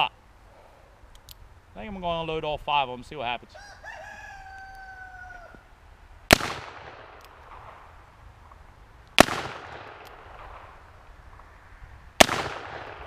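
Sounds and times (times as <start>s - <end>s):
revolver gunshots with echo: 6.3s - 7.9s, 9.2s - 10.8s, 12.2s - 13.0s.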